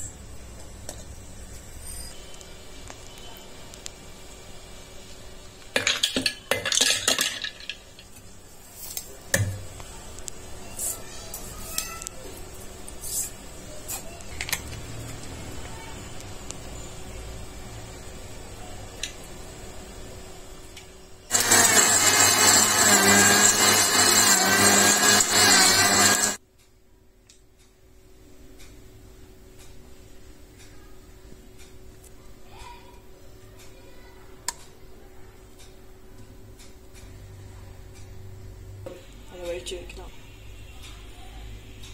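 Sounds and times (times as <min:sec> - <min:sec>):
ice cubes clinking on metal: 0:05.8 - 0:08.1
mixer grinder motor whining: 0:21.3 - 0:26.4.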